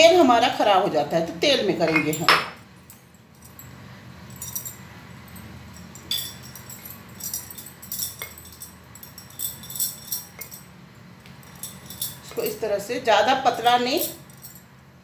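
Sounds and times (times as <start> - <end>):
low steady rumble: 0.0 - 15.0
bangles clinking and jingling: 2.1 - 12.6, 13.6 - 14.7.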